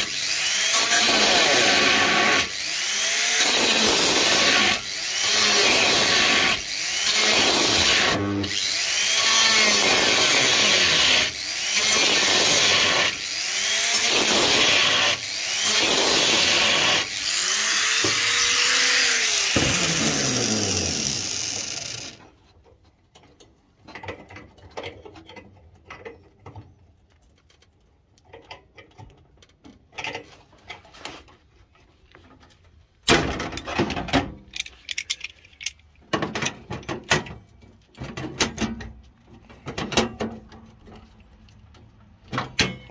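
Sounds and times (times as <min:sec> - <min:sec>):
angle grinder cutting sheet steel: 0:00.0 - 0:22.3.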